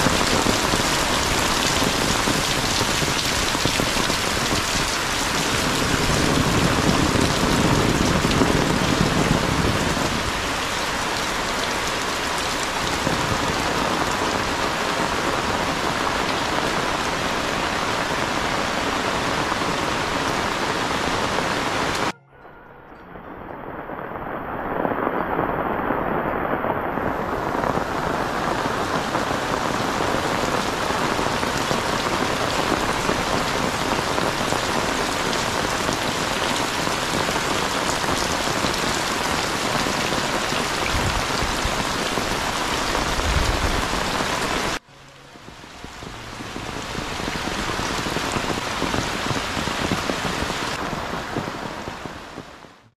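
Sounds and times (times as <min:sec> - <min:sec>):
heavy rain pouring: 0:00.0 - 0:22.2, 0:23.0 - 0:52.9.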